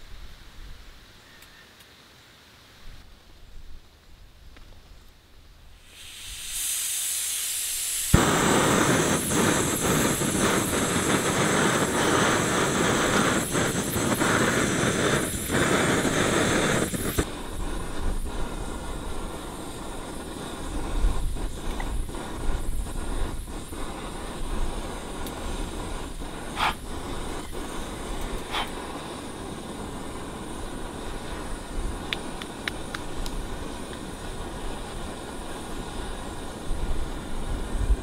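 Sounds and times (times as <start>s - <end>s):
stove flame hissing: 0.0s - 38.0s
gas hissing from valve: 5.7s - 38.0s.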